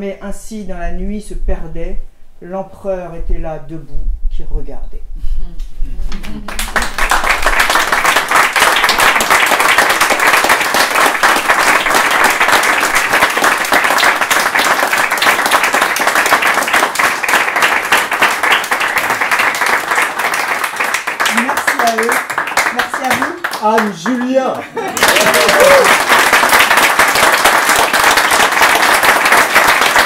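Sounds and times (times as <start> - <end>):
audience applauding: 6.5 - 30.0.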